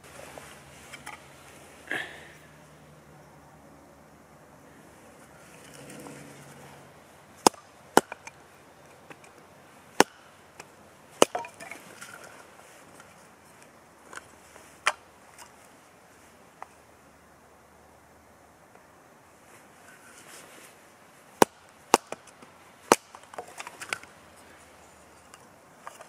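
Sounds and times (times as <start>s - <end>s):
knife chopping into wood: 10.0s - 10.2s
wood splintering: 10.0s - 10.3s, 11.2s - 12.3s.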